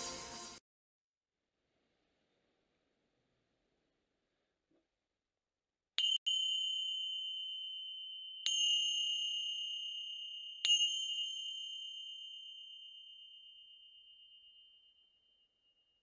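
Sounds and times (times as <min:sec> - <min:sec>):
finger cymbals ringing: 0:06.0 - 0:16.0.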